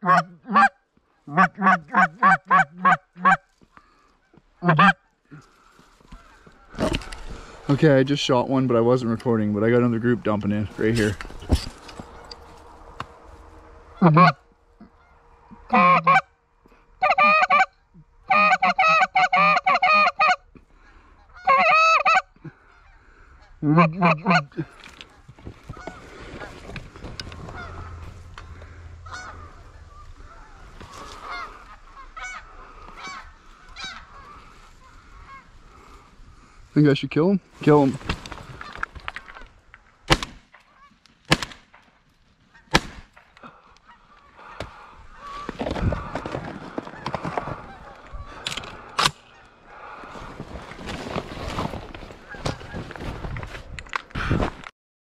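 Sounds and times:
goose honks and clucks: 0.0 - 3.5, 4.2 - 5.2, 13.8 - 16.4, 17.0 - 20.4, 21.2 - 26.1, 27.2 - 35.8, 46.8 - 48.4
shotgun shots: 40.1 - 40.5, 41.3 - 41.8, 42.7 - 43.2.

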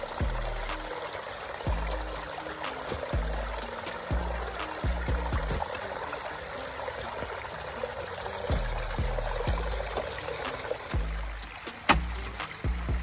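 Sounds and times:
creek water trickling over rocks: 0.0 - 13.0
shovel digging in streambed: 2.6 - 4.0, 4.6 - 5.7, 11.6 - 12.6.

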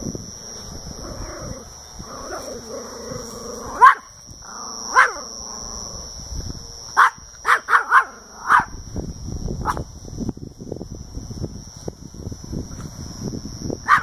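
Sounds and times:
small dog barking sharply: 3.8 - 4.0, 7.0 - 8.7.

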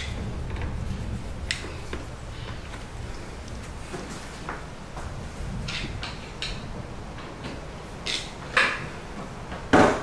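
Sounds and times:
low rumble: 0.0 - 7.8.

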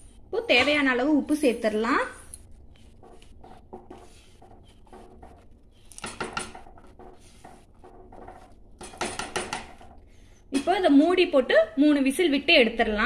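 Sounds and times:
spatula scraping a pot: 2.6 - 10.4.

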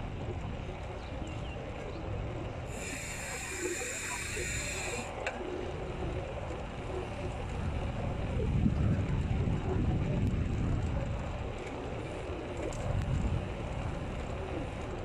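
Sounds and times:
bike tyres rolling on asphalt: 0.0 - 15.0
wind rumble: 0.0 - 15.0
high hiss: 2.7 - 5.2.

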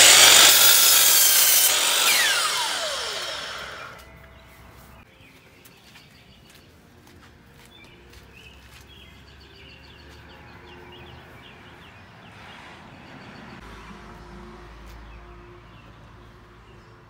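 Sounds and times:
small birds chirping: 4.0 - 6.8, 7.6 - 13.6.

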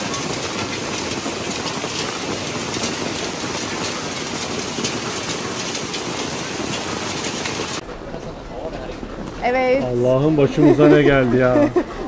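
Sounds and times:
hail hitting metal tables: 0.0 - 7.8
rain and hail on pavement: 0.0 - 7.8.

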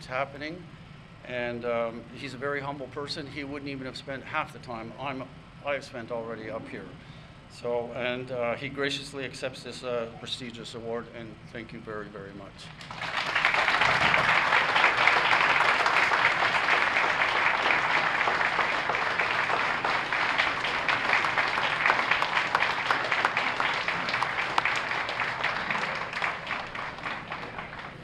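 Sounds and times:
audience applauding: 12.8 - 28.0.

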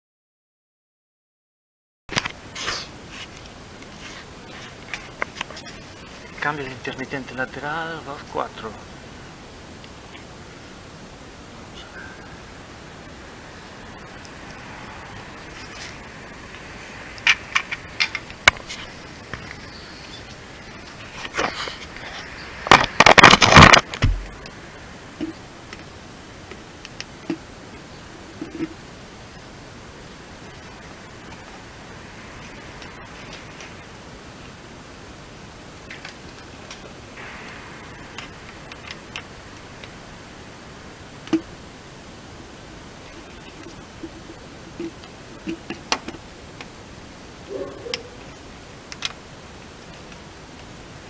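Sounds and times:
steady hiss: 2.1 - 51.0
scraping rustle on plastic: 2.5 - 6.5.

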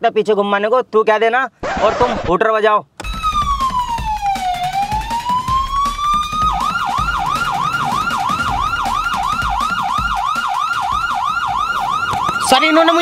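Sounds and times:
police siren wail and yelp: 3.0 - 13.0.

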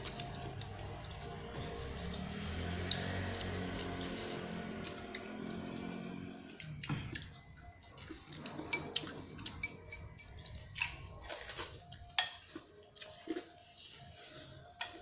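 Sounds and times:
cutlery clinking on a plate: 8.1 - 12.6.

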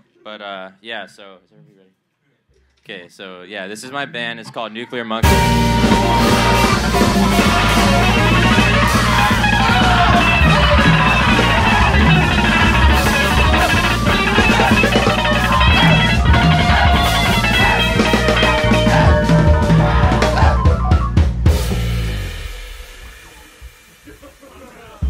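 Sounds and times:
keyboard: 5.2 - 21.7
electric guitar: 5.2 - 22.0
bass: 5.2 - 22.9
drum kit with sticks: 5.2 - 25.0.

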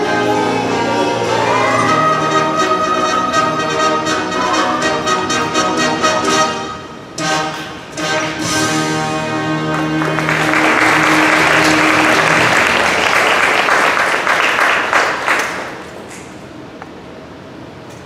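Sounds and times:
audience applauding: 9.6 - 16.0.

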